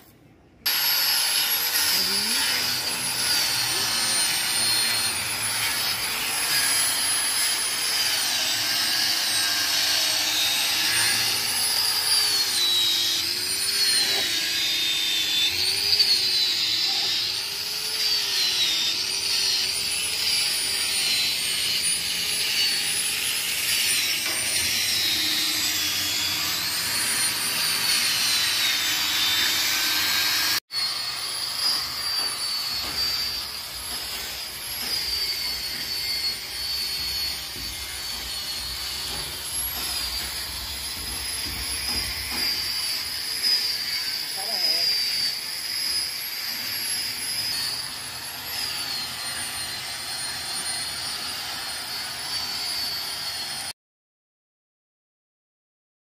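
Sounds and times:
machine whirring with high whine: 0.7s - 53.7s.

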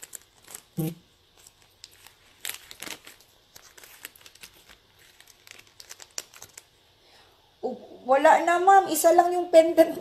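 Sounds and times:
packaging crinkling and rustling: 0.0s - 6.8s.

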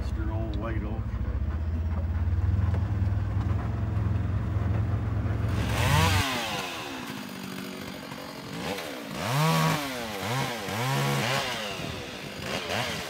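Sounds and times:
vehicle engine running: 0.0s - 6.9s
chainsaw revving: 5.4s - 13.0s.

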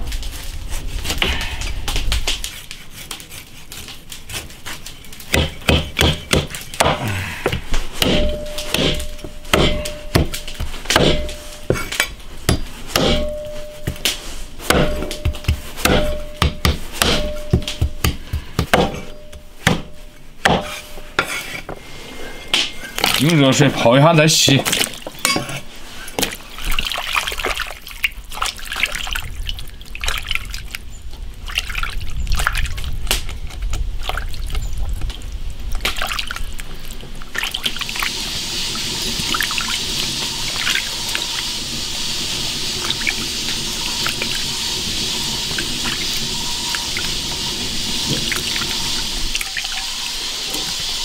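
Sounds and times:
running water: 22.4s - 30.8s, 34.0s - 51.0s
water sloshing and splashing: 22.7s - 50.8s.

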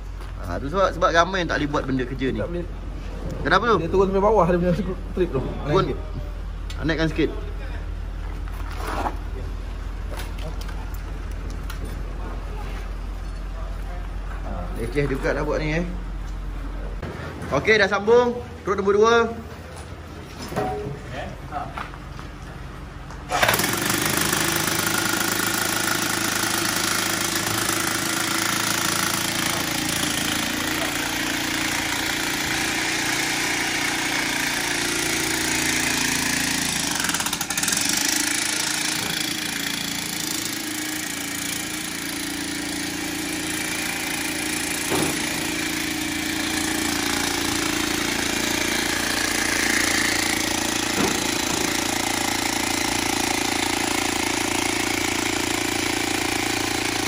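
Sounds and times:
electric demolition hammer: 23.2s - 57.0s.

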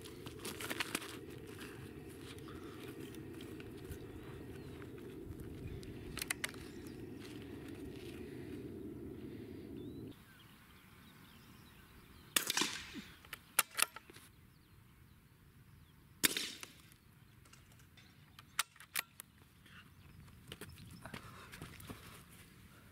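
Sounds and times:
rifle shots: 12.4s - 13.0s.

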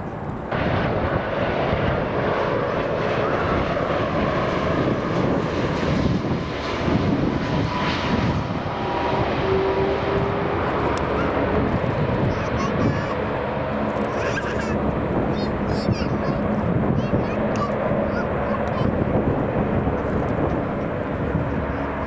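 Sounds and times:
jet airliner rumble: 0.0s - 22.0s
thin engine whine: 0.6s - 12.4s.

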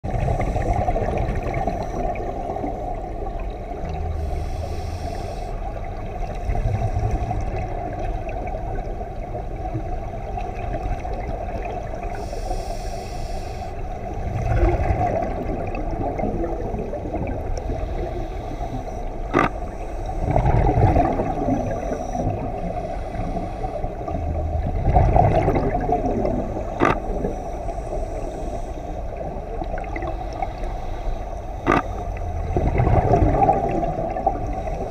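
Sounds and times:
underwater low rumble: 0.0s - 34.9s
regulator bubbles: 14.2s - 17.8s, 19.2s - 22.7s, 23.9s - 27.3s, 31.6s - 34.9s
sharp clicks: 19.3s - 19.6s, 26.8s - 27.0s, 31.7s - 31.9s.

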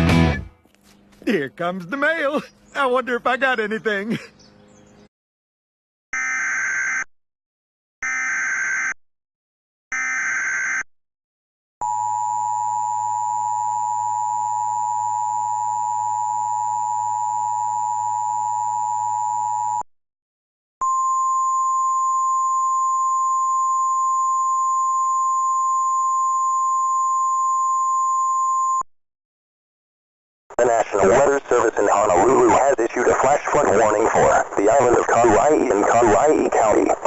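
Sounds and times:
steady warning alarm tone: 6.2s - 7.1s, 8.0s - 9.0s, 9.9s - 10.9s, 11.8s - 19.8s.

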